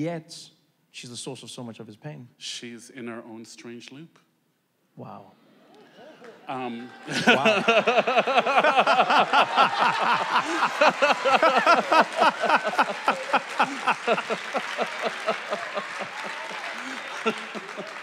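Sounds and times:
audience laughing and cheering: 5.6 - 18.0
audience clapping: 5.7 - 18.0.

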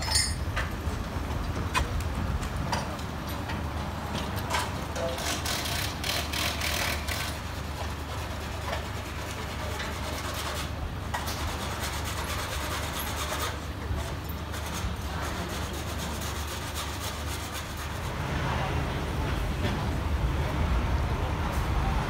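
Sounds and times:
metal knocks and clanks: 0.0 - 0.8.

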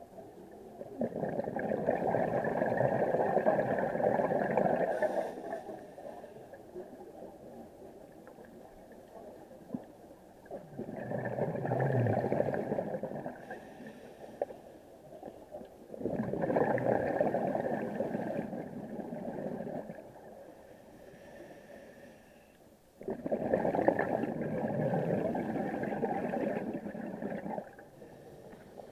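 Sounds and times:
exhaled bubbles surging: 0.8 - 5.1, 10.4 - 13.4, 15.9 - 20.4, 23.0 - 27.9
diver breathing through regulator: 4.8 - 6.3, 13.4 - 14.6, 20.5 - 22.5.

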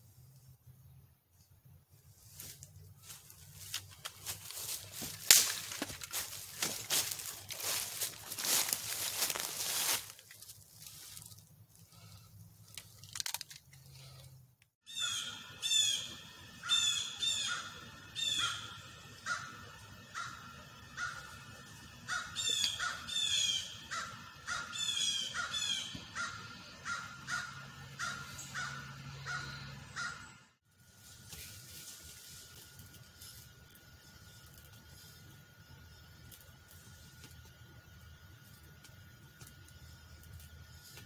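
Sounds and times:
crows cawing: 14.9 - 30.4.

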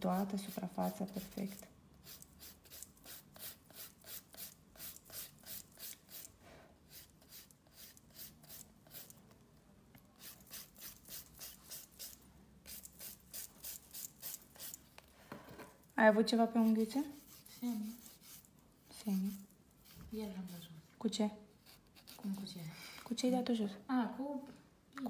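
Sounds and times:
nail file strokes on fingernail: 0.1 - 6.3, 6.9 - 9.2, 10.2 - 14.8, 16.6 - 20.8, 21.6 - 22.6.

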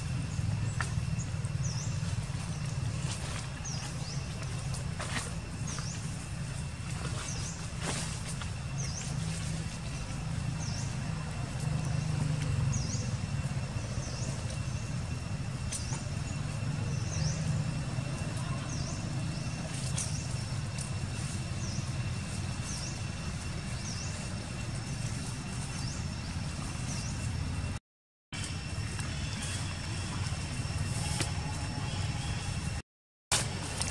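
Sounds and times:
low rumble: 0.0 - 27.8
thin high whine: 28.4 - 32.8.

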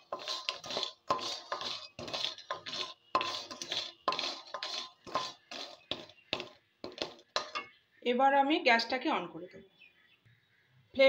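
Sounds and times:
spatula scraping a pan: 0.0 - 7.7.

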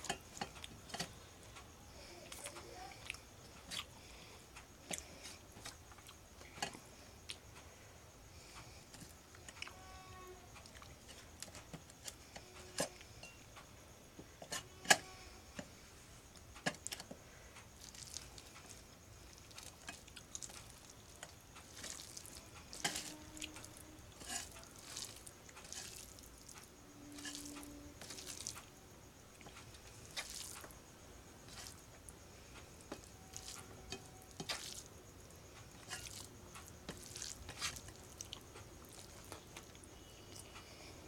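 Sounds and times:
wet squishing of rice by hand: 16.6 - 40.6.

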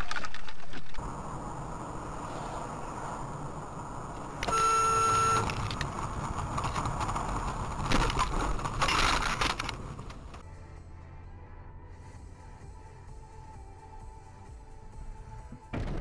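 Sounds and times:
car interior road noise: 0.9 - 11.2.

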